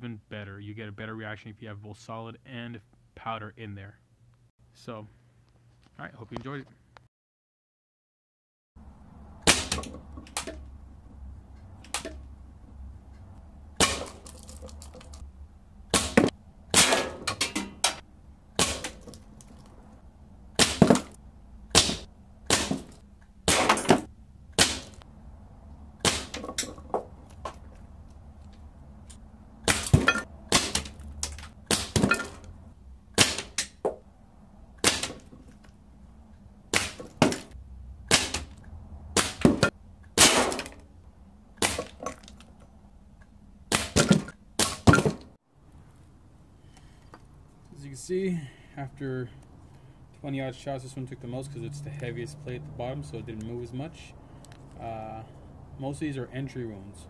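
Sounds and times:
pellet striking plastic target: 0:09.5 - 0:10.6, 0:13.8 - 0:15.1, 0:15.9 - 0:17.9, 0:18.6 - 0:19.2, 0:20.6 - 0:21.1, 0:21.7 - 0:25.0, 0:26.0 - 0:27.1, 0:29.7 - 0:31.0, 0:31.7 - 0:32.3, 0:33.2 - 0:34.0, 0:34.8 - 0:35.3, 0:36.7 - 0:38.6, 0:39.2 - 0:40.8, 0:41.6 - 0:42.1, 0:43.7 - 0:45.2
air rifle shots: 0:15.9 - 0:18.0, 0:21.7 - 0:24.0, 0:26.0 - 0:26.4, 0:33.2 - 0:33.7, 0:39.2 - 0:40.7.

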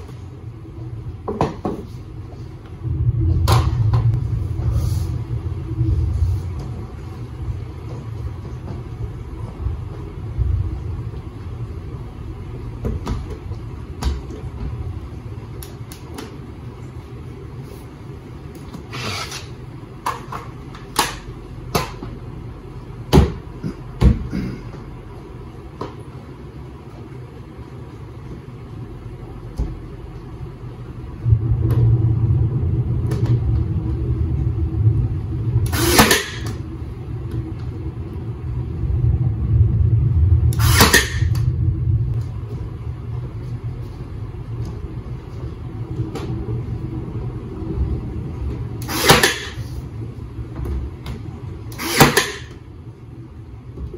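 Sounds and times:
low steady hum: 0:00.0 - 0:53.9
nail gun firing: 0:35.7 - 0:36.4, 0:40.6 - 0:41.2, 0:48.8 - 0:49.5, 0:51.7 - 0:52.5.

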